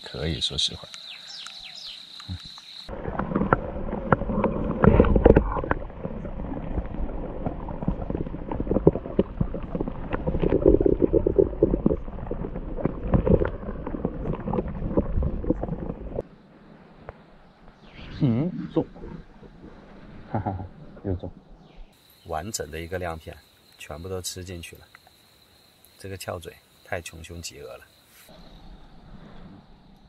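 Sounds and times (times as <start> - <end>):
underwater churning and gurgling: 2.9 - 16.2, 18.6 - 21.6.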